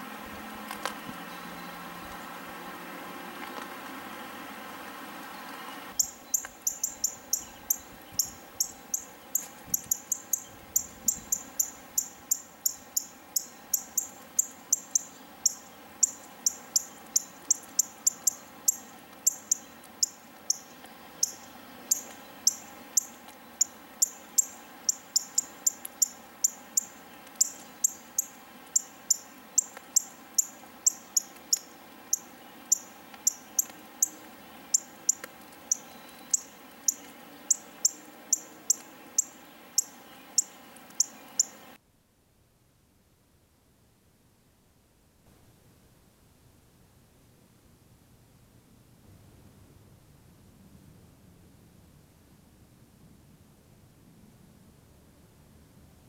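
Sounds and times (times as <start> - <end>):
insect chirping: 5.9 - 41.8.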